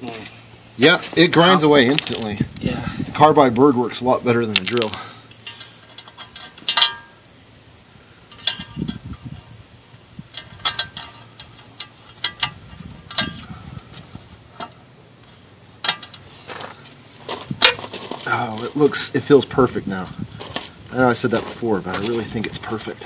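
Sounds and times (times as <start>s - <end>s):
metal plate clicking and ringing: 5.4s - 7.2s, 8.3s - 9.1s, 10.3s - 13.5s, 15.8s - 16.3s
quiet rubbing and rustling: 10.2s - 23.0s.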